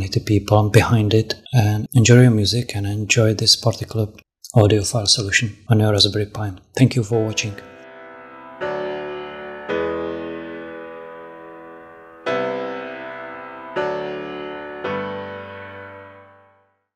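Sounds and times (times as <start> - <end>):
sustained keyboard chords: 7.1 - 16.6.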